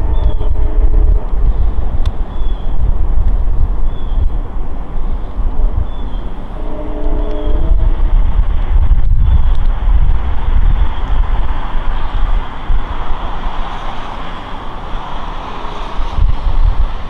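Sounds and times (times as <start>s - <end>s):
train rumble and rail noise: 0.0s - 17.0s
wind buffeting microphone: 0.0s - 17.0s.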